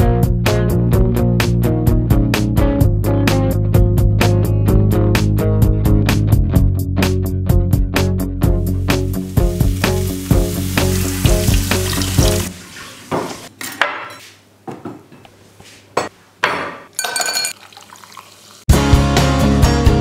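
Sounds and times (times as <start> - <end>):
upbeat guitar and bass music: 0.0 - 12.5, 18.7 - 20.0
frying pan sizzle: 8.8 - 13.5
plates knocking on wooden table: 13.1 - 15.2, 16.0 - 17.5
ice cubes clinking into glass: 17.0 - 18.4.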